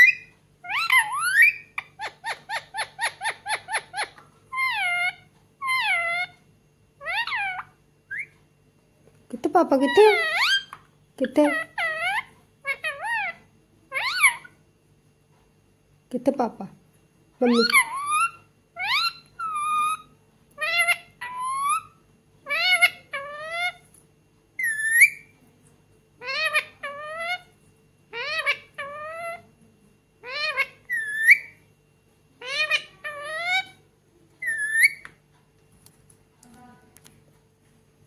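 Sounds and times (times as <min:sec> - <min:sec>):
parakeet calling: 0:00.0 - 0:08.4, 0:09.7 - 0:14.6, 0:17.4 - 0:23.8, 0:24.6 - 0:25.3, 0:26.2 - 0:29.5, 0:30.2 - 0:31.7, 0:32.4 - 0:33.8, 0:34.4 - 0:35.2.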